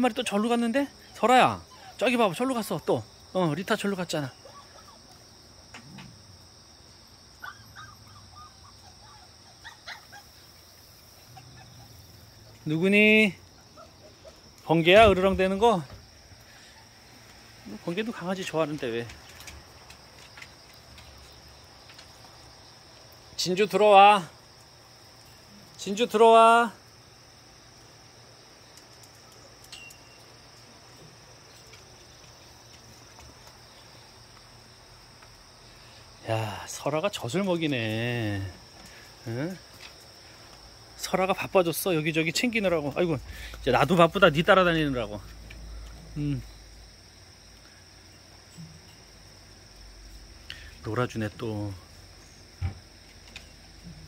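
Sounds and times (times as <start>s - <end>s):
crickets chirring: 0.0s - 54.0s
insects droning: 0.0s - 54.0s
dogs squeaking: 7.4s - 10.5s.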